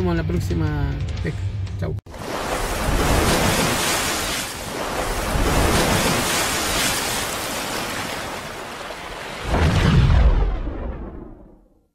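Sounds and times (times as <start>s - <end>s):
rushing splashing water: 2.1s - 11.3s.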